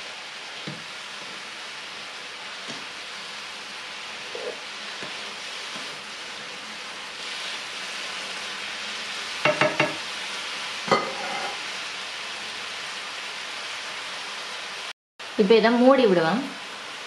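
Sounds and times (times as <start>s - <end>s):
food sizzling in a frying pan: 0.0s - 17.0s
spatula knocking against pan: 9.4s - 10.0s.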